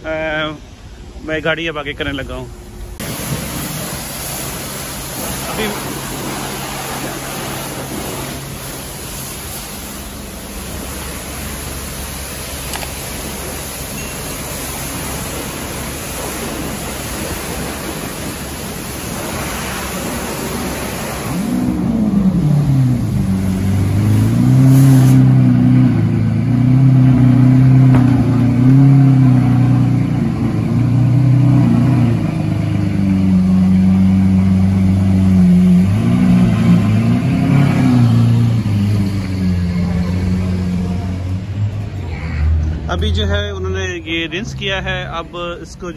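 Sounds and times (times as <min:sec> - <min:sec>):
pressure washer spray hissing: 0:03.0 - 0:25.3
car engine revving: 0:15.0 - 0:45.5.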